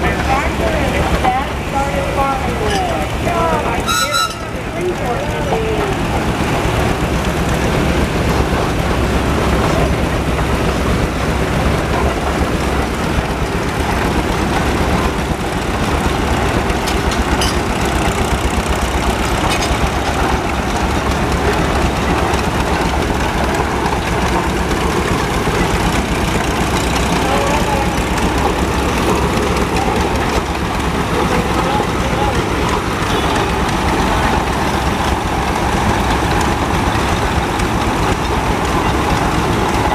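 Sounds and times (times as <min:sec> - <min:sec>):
steam traction engine running: 0:00.0 - 0:39.9
tractor engines running: 0:00.0 - 0:39.9.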